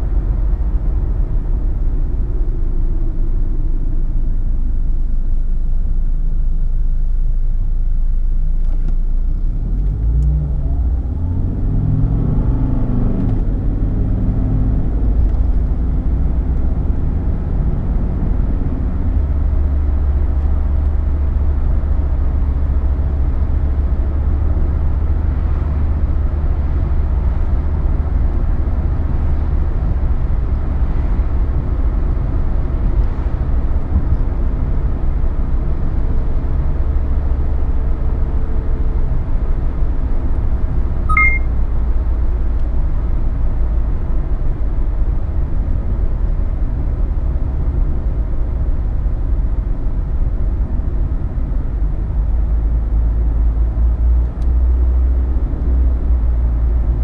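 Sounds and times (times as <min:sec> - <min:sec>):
diesel engine drone in cabin: 0:00.0 - 0:57.0
road noise: 0:00.0 - 0:57.0
high beep: 0:41.1 - 0:41.5.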